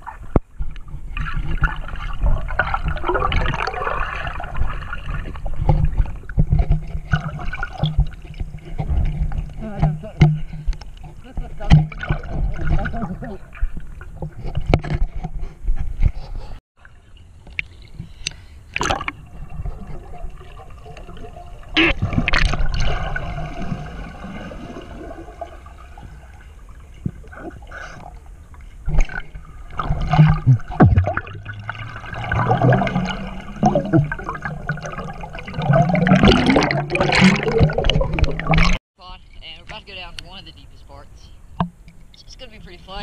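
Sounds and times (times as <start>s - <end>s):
muffled underwater sloshing: 0.0s - 40.6s
bubbles bursting: 1.2s - 6.2s, 29.0s - 38.8s
sharp underwater knocks: 28.9s - 38.8s.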